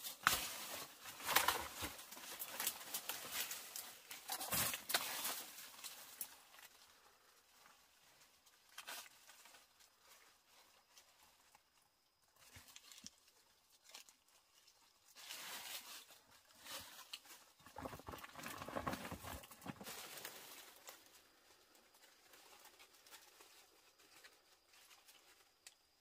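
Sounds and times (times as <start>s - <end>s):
plastic sack rustling: 0.0s - 6.6s, 15.1s - 21.4s
dry leaves rustling: 0.0s - 11.6s, 12.4s - 25.7s.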